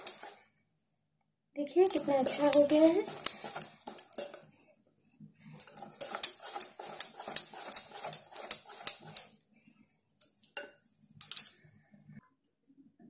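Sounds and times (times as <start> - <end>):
whisk clinking in glass bowl: 0.0 - 0.4, 1.8 - 4.4, 5.6 - 9.3.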